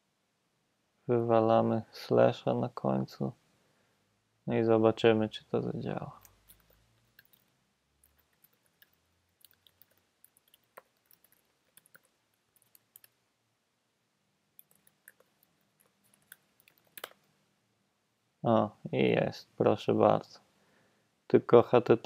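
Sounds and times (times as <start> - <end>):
keyboard typing clicks: 6.2 - 13.2, 14.6 - 17.3.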